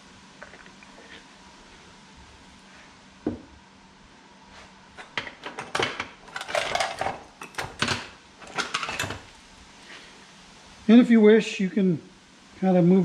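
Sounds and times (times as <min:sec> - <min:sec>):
objects clattering on wooden workbench: 0:05.0 - 0:09.3.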